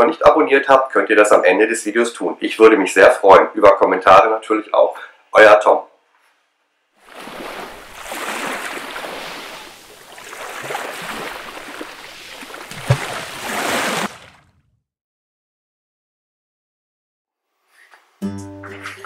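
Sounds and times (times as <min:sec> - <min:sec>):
rushing splashing water: 0:07.0 - 0:14.4.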